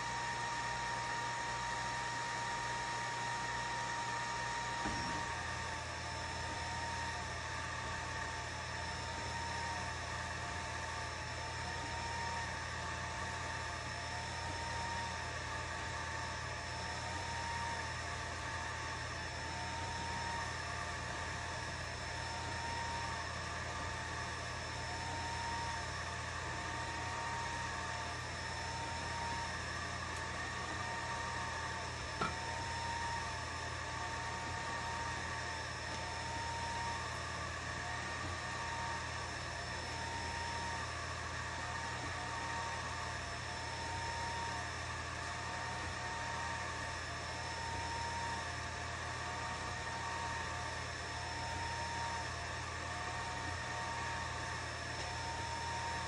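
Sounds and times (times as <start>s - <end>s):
high motor whine: 0.0s - 56.0s
fan hum: 26.5s - 42.9s.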